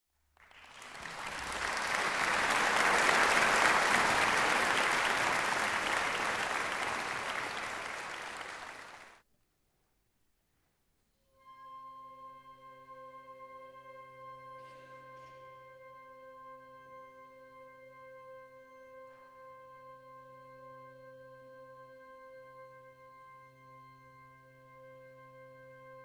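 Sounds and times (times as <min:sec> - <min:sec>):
audience applauding: 0:00.4 - 0:09.2.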